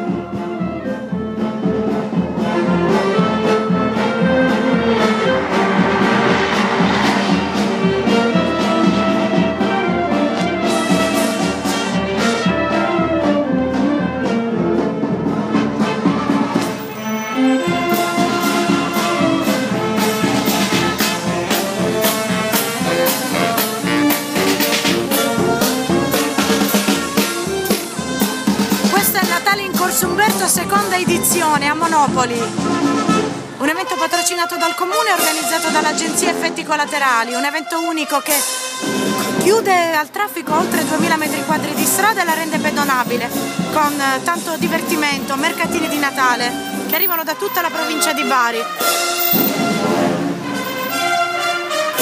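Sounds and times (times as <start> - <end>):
wind band playing a tune: 0.0 - 52.0
steady drum beat: 17.8 - 33.5.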